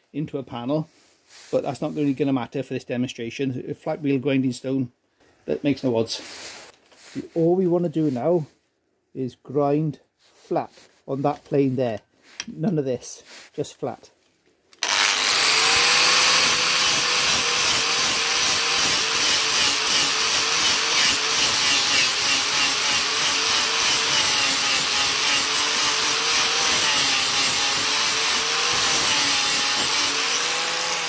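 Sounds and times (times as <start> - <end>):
angle grinder grinding metal: 14.8 - 31.0.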